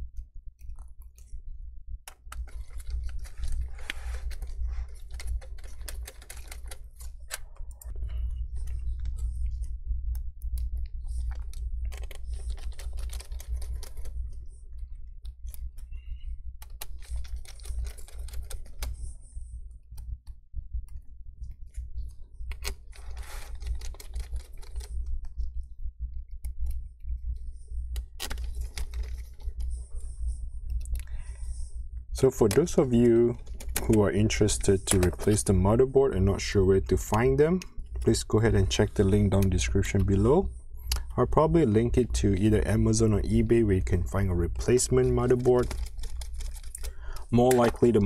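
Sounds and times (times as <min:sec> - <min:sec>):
low steady hum: 0:00.0 - 0:48.0
clicks and rustling of gloved hands: 0:43.9 - 0:48.0.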